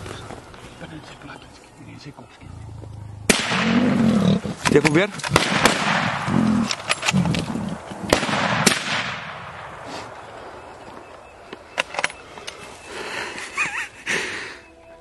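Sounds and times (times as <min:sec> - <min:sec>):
suppressed rifle shots: 0:03.3 - 0:04.0, 0:04.7 - 0:07.4, 0:08.0 - 0:10.6.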